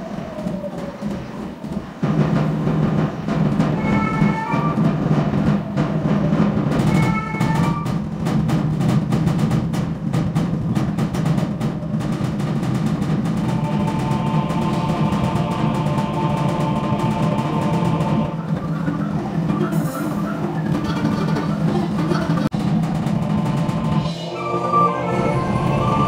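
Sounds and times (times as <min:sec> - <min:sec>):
drum ensemble playing fast rolls: 0:00.0 - 0:26.0
held melodic notes: 0:23.2 - 0:26.0.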